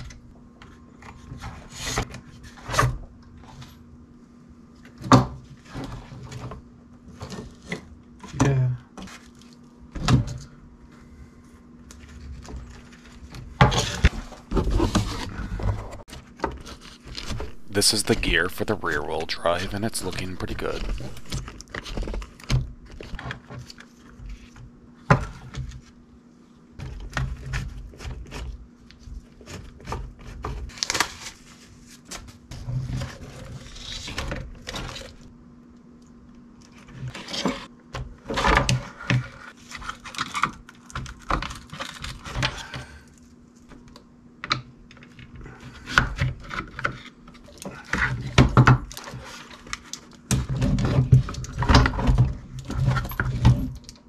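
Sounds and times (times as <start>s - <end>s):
faint steady hum: 17.1s - 23.3s.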